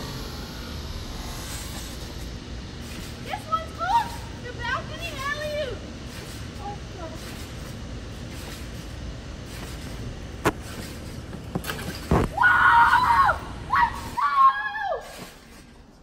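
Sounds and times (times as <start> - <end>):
boy yelling: 3.3 - 5.8, 12.4 - 15.1
basketball bouncing on trampoline: 7.1 - 12.4.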